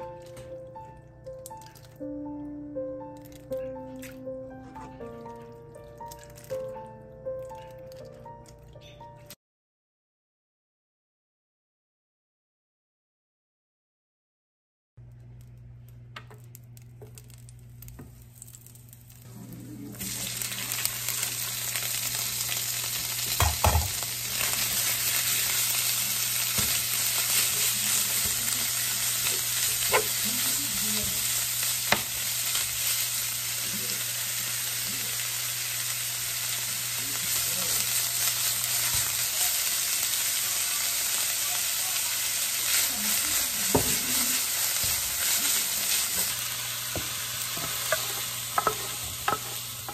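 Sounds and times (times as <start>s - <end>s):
hot oil sizzling: 16.3s - 49.9s
spatula knocking against pan: 47.6s - 49.9s.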